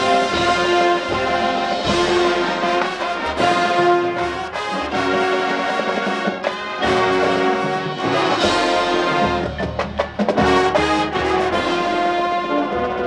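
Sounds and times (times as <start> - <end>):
marching band brass chords: 0.0 - 13.0
percussion hits: 0.0 - 13.0.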